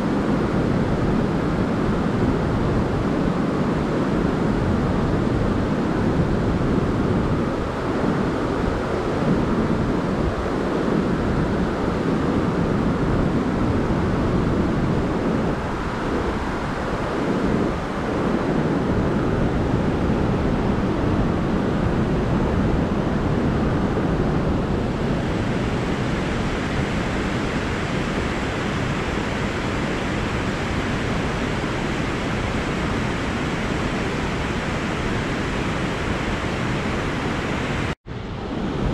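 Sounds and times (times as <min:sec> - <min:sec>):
white-water rapids roaring: 0:23.4 - 0:38.9.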